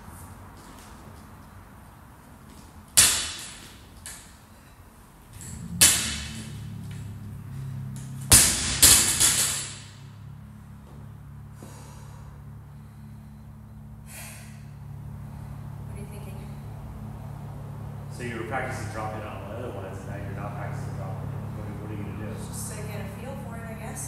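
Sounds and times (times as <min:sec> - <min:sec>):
barbell bouncing and rattling: 0:08.0 - 0:10.0.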